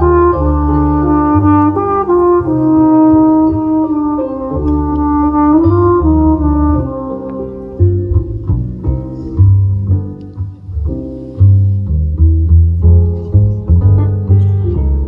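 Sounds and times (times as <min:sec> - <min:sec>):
jazz flugelhorn melody: 0:00.0 - 0:10.0
plucked double bass: 0:00.0 - 0:15.0.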